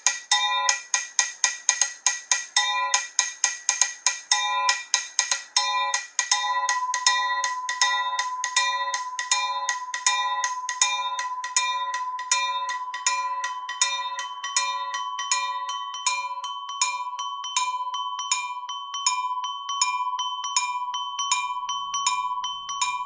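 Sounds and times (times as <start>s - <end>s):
wine glasses tapped ringing: 5.6s - 23.0s.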